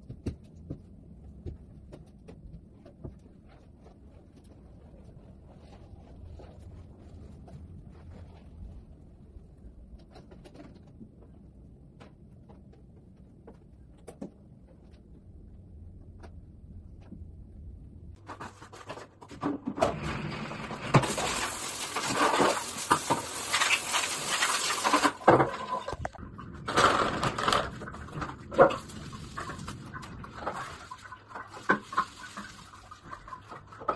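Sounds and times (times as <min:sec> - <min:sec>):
faint low hum: 0:00.0 - 0:18.2.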